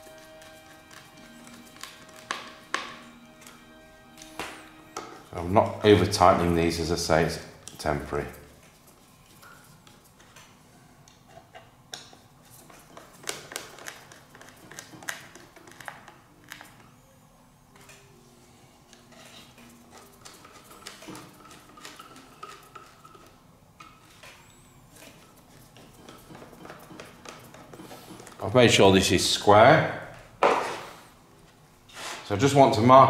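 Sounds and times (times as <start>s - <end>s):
wood and tools knocking: 1.7s - 3.1s, 25.0s - 28.4s, 30.4s - 30.9s.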